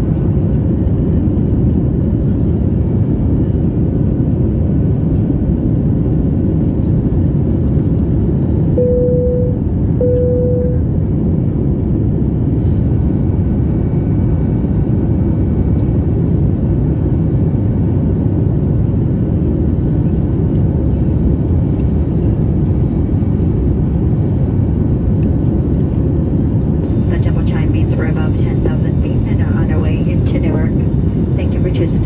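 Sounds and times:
airplane cabin roar: 0.0 - 32.0
short steady tones: 8.8 - 10.9.

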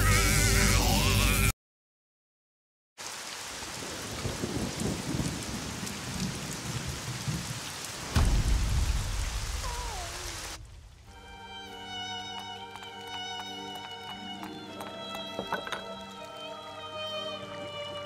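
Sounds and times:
steady rain: 3.0 - 18.0
thunderclap with low rumble: 3.8 - 11.2.

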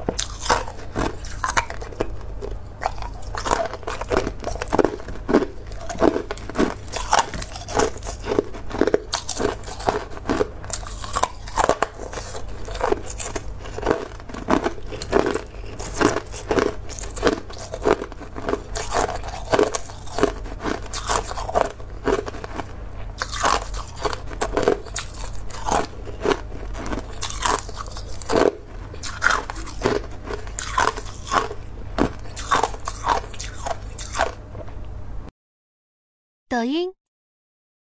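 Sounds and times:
person crunching ice: 0.2 - 2.1, 2.8 - 34.3.

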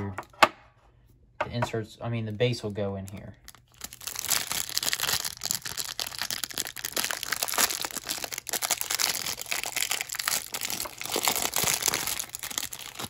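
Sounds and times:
plastic wrapper crinkling and tearing: 3.0 - 13.0.

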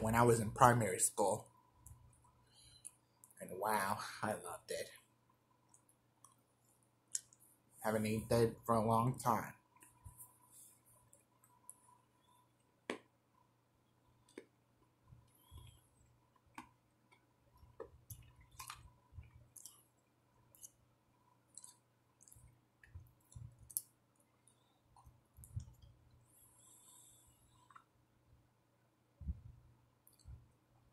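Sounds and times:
faint chewing crunches: 15.2 - 26.2.

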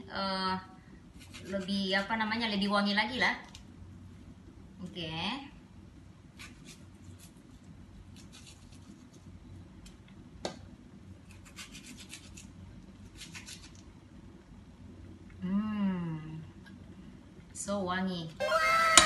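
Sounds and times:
knife cutting fibrous bud: 13.1 - 13.8.

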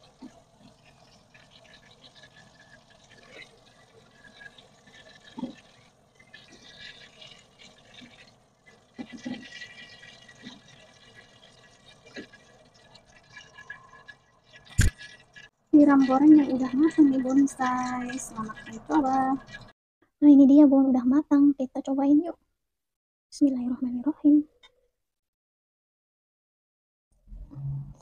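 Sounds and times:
hot oil sizzling and crackling: 0.0 - 19.7.

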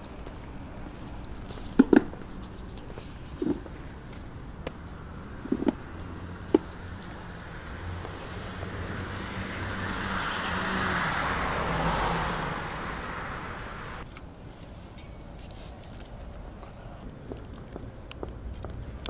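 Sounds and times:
vehicle passing: 0.0 - 14.1
low hum of traffic: 0.0 - 19.0.

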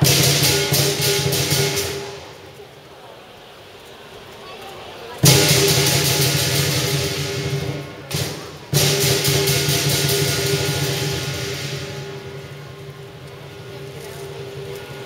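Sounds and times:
gong and cymbals crashing: 0.0 - 2.4, 5.2 - 13.8.

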